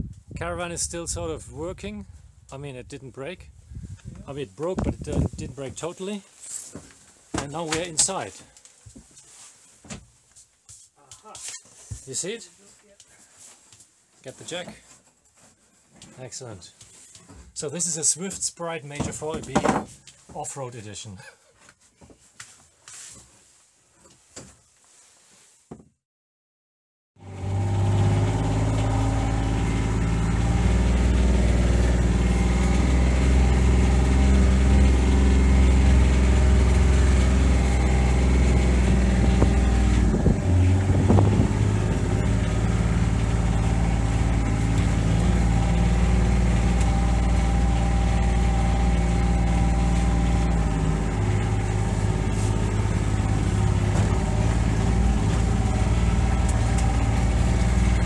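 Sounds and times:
knocks: 19.0s - 20.0s
vehicle engine running: 27.2s - 58.0s.

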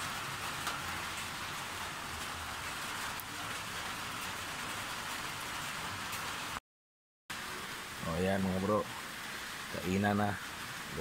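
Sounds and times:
steady rain hiss: 0.0s - 6.6s, 7.3s - 11.0s.

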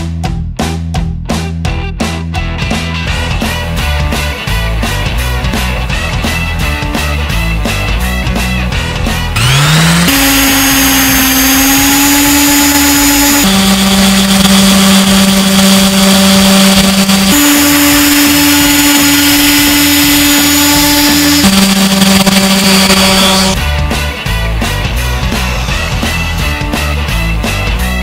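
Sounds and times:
orbital sander motor hum: 9.0s - 23.6s
sanding pad hiss: 9.4s - 23.6s.

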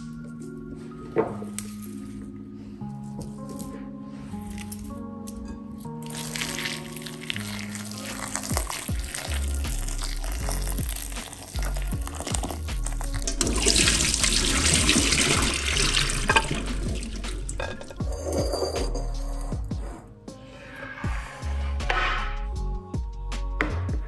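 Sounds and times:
background music: 0.0s - 24.0s
water splashing into metal sink: 13.2s - 17.9s.

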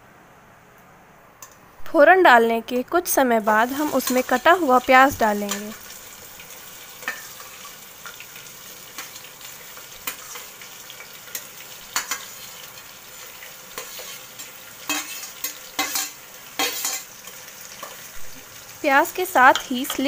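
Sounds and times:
onions sizzling in hot oil: 3.0s - 20.0s
ladle scraping and clinking on plate: 14.9s - 17.1s.

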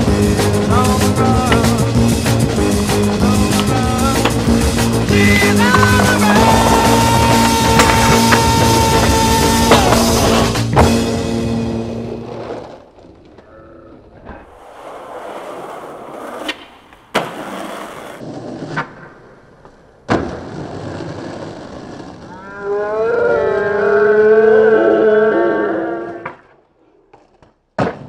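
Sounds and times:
skateboard wheels rolling on asphalt: 0.0s - 22.7s, 26.2s - 28.0s
skateboard tail clacks: 0.4s - 11.0s.

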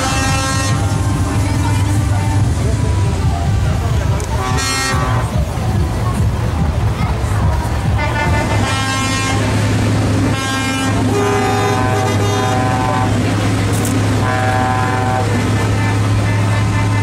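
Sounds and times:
truck air horn blasts: 0.0s - 2.6s, 4.4s - 5.4s, 8.0s - 9.6s, 10.2s - 13.2s, 14.1s - 17.0s
truck engine droning: 0.0s - 17.0s.

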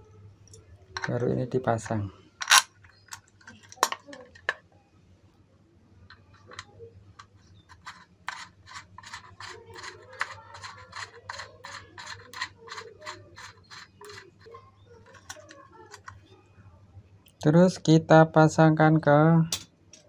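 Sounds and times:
metal nut scraping on thread: 2.4s - 4.5s, 6.1s - 16.2s.

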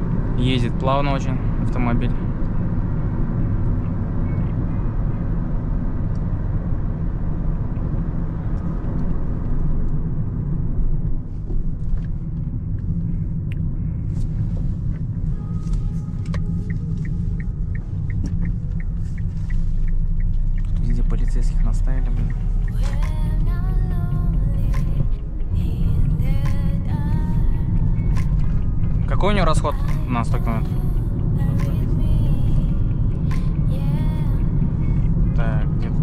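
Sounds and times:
car engine rumble: 0.0s - 36.0s
road noise: 0.0s - 36.0s
turn signal ticking: 14.5s - 36.0s.

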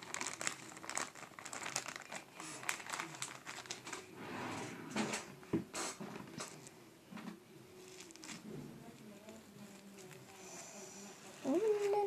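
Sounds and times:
plastic items rustling and clicking: 0.0s - 4.1s, 5.1s - 10.2s.

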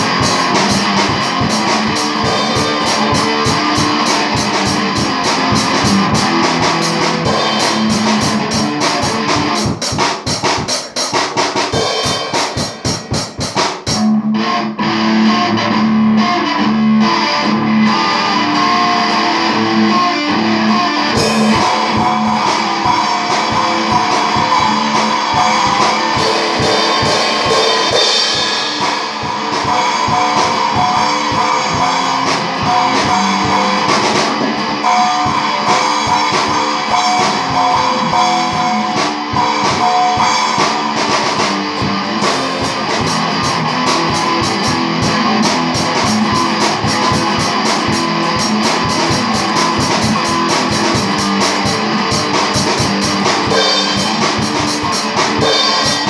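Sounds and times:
drum kit: 0.0s - 56.0s
electric guitar: 0.0s - 56.0s.

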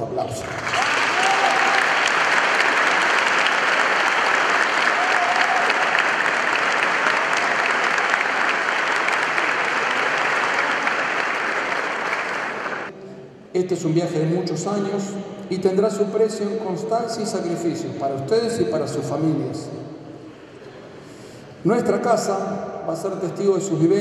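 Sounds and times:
audience applauding: 0.4s - 12.9s.

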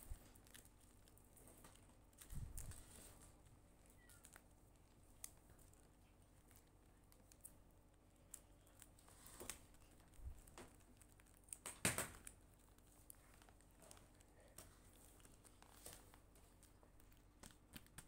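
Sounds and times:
paper cutouts tapping and crinkling: 0.0s - 18.0s
paper rustling: 8.2s - 18.0s.

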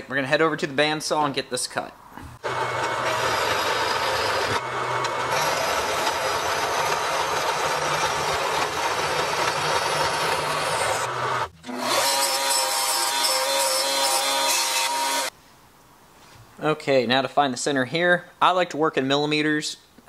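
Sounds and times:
bandsaw cutting metal: 2.4s - 15.3s
belt sander whine: 2.4s - 15.3s.

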